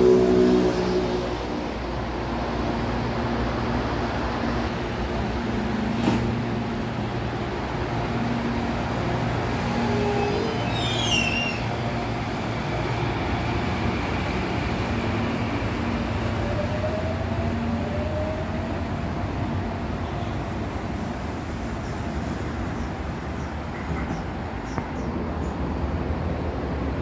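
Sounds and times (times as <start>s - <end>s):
high falling squeal: 9.9s - 11.7s.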